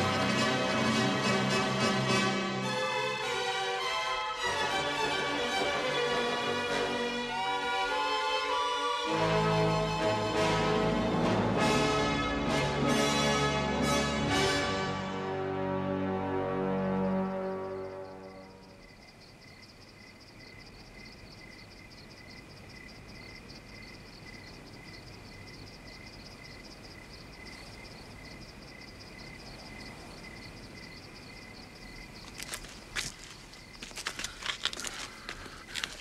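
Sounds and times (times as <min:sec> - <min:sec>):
crickets chirping: 0:16.1 - 0:36.0
footsteps rustling: 0:32.2 - 0:36.0.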